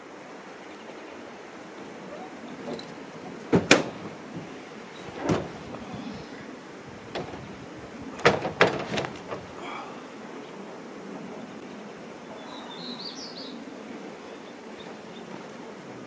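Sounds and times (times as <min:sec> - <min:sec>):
metal tailgate clunks: 0:02.2 - 0:09.6
thuds of person climbing out: 0:02.6 - 0:09.6.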